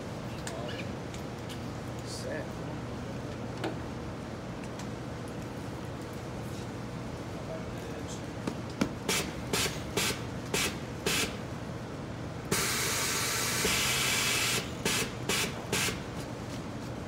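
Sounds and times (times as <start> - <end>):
compressed air hissing: 9.1 - 11.4, 12.5 - 16.0.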